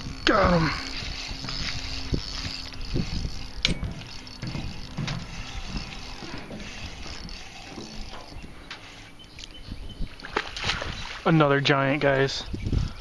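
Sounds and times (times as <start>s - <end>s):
wind buffeting microphone: 0.0s - 13.0s
handling noise: 1.0s - 9.0s
low knocks: 3.6s - 5.9s.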